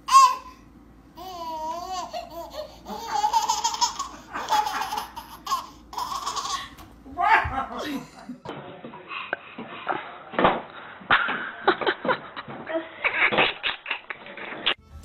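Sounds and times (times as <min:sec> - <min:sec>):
baby laughing: 0:00.0 - 0:00.6, 0:01.2 - 0:06.8.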